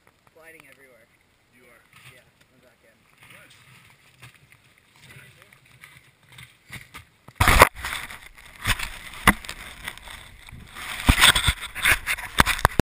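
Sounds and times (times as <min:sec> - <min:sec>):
camera handling rubbing and rustling: 0:05.6 - 0:12.8.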